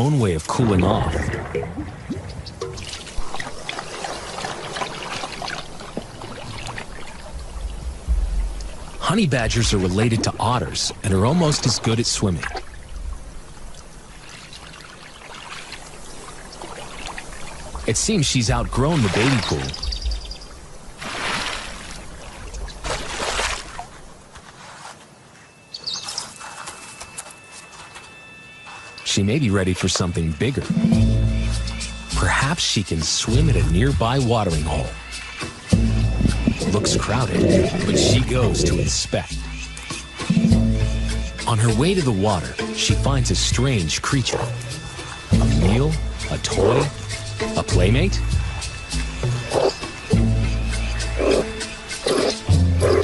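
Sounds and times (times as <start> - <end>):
water splashing in paddling pool: 0.0 - 24.3, 34.3 - 41.2
low bump: 35.7 - 38.8.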